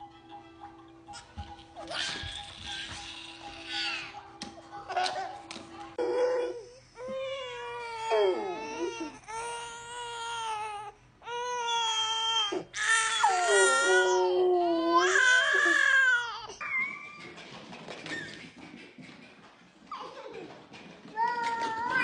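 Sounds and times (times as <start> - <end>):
baby crying: 1.8 - 4.2, 6.0 - 17.0.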